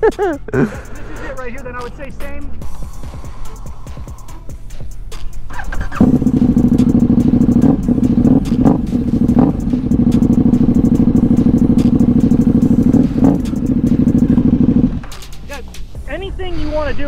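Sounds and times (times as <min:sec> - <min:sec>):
motorcycle engine idling: 0:03.7 - 0:16.0
motorcycle throttle blips: 0:05.5 - 0:15.9.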